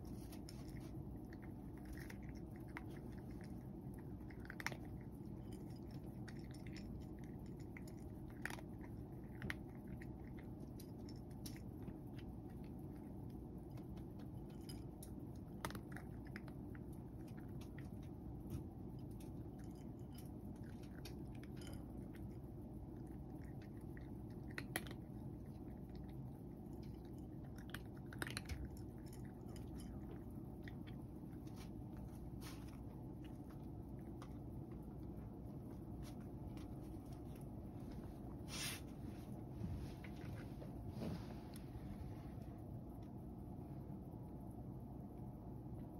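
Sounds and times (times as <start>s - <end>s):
cat chewing dry kibble: 0.0s - 42.0s
low hum: 0.0s - 45.9s.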